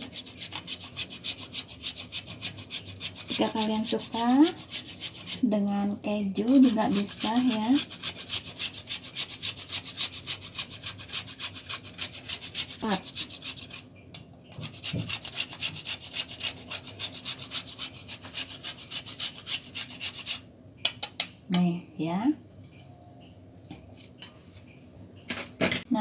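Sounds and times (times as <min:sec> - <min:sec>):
chocolate scraped on metal grater: 0:00.0 - 0:05.4, 0:06.4 - 0:13.8, 0:14.6 - 0:20.4.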